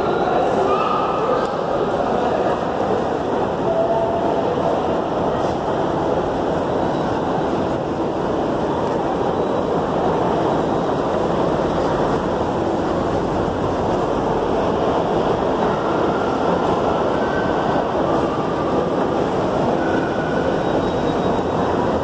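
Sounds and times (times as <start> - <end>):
faint high squeal: 19.9 - 21.6.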